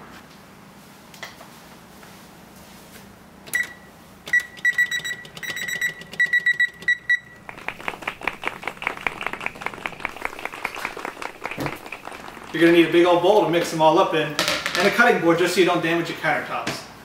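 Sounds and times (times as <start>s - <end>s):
oven control panel beeps: 3.5s - 7.4s.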